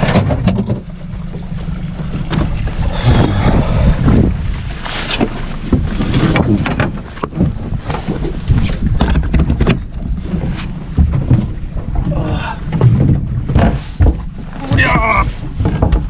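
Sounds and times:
knocks and clatter: 0.0 - 2.7, 5.2 - 10.2, 10.8 - 12.0, 12.7 - 16.0
water noise: 0.0 - 16.0
wind rumbling on microphone: 0.0 - 16.0.

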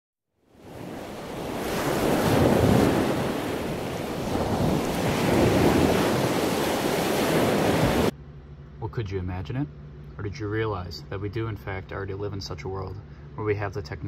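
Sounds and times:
ocean waves washing in: 0.4 - 8.1.

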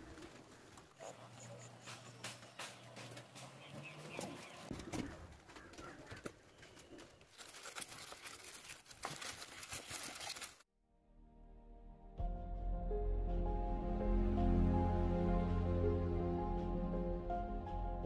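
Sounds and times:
bird calling: 0.0 - 7.3.

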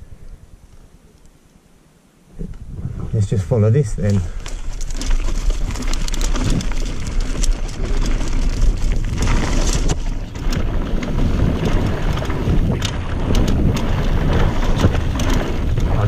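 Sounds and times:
wind buffeting microphone: 2.4 - 16.0
bike clattering: 4.3 - 16.0.

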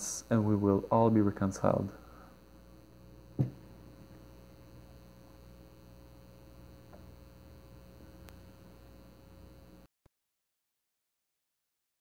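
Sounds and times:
faint electrical hum and hiss: 0.0 - 9.9
brief knock: 3.4 - 3.7
faint click: 8.2 - 8.4.

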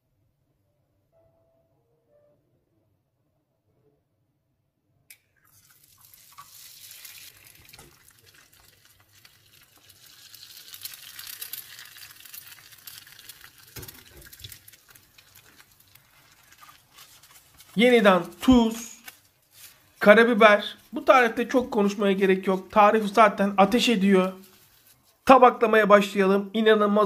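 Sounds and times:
egg sizzling in frying pan: 5.3 - 20.0.

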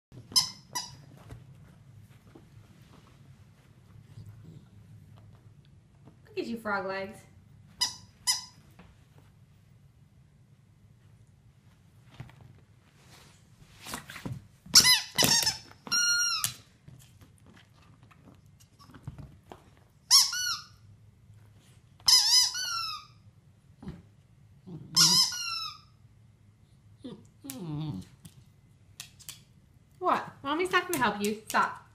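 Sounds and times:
squeaky toy squeaks: 0.3 - 1.1, 7.8 - 8.6, 14.8 - 16.5, 20.1 - 20.8, 22.1 - 23.2, 25.0 - 25.9.

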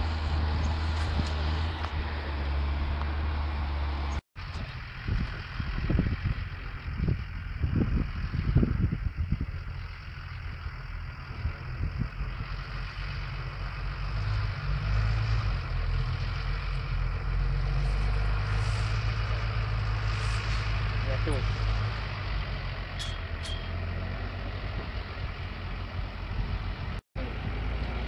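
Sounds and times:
tractor diesel engines droning: 0.0 - 28.0
wind thumps on microphone: 5.1 - 9.6.

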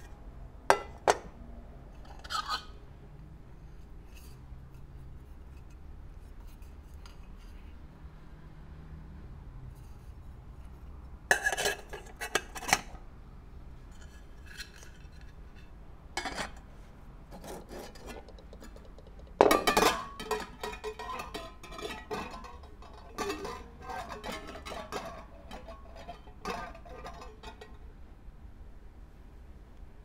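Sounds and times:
metal pots clinking and clattering: 0.7 - 1.3, 11.3 - 13.0, 17.5 - 27.8.

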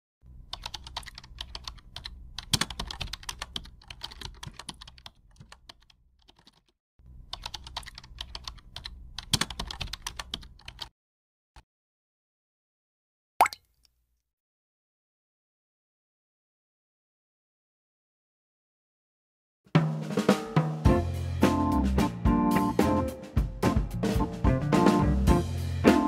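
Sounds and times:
computer keyboard typing: 0.5 - 6.7, 7.3 - 10.9.

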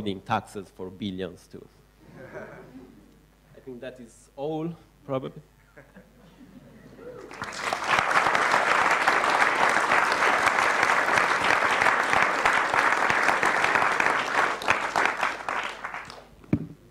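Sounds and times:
audience applauding: 7.2 - 16.3.

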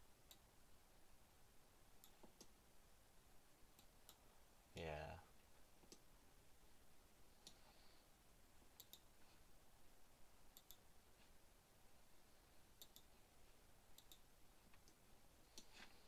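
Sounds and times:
room hiss: 0.0 - 16.0
computer mouse clicks: 2.0 - 2.6, 8.8 - 9.1, 10.5 - 10.8, 12.8 - 13.1, 14.0 - 15.8.

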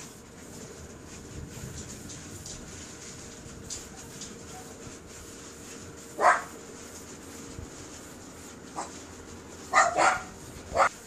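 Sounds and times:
dog barking: 6.2 - 6.5, 9.7 - 10.9.

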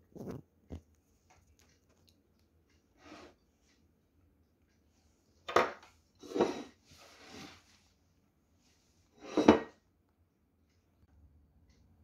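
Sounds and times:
kitchenware scraping: 5.5 - 7.7, 9.2 - 9.8
kitchenware clink: 9.2 - 9.8.

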